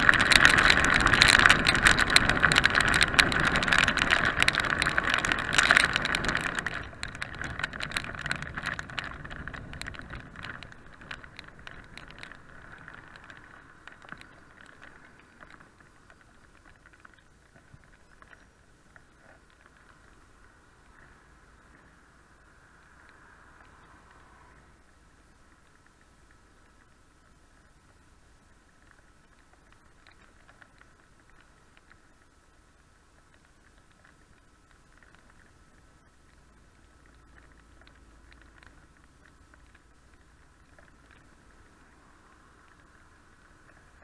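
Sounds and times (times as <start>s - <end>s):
rushing wind: 0.0s - 15.9s
raindrops pattering on camera: 0.0s - 44.0s.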